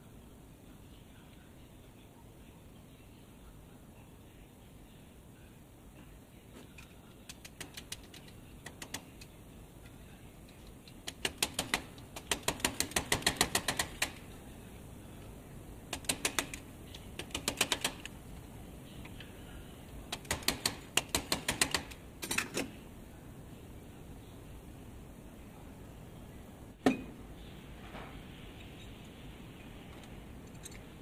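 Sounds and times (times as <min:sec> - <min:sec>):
quick metal clicks: 0:06.8 - 0:09.3.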